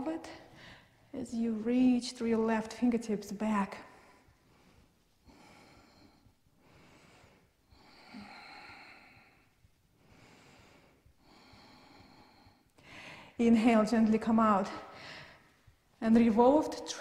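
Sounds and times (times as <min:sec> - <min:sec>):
woman breathing slowly: 0:00.2 - 0:01.2, 0:03.8 - 0:13.4, 0:14.7 - 0:16.0.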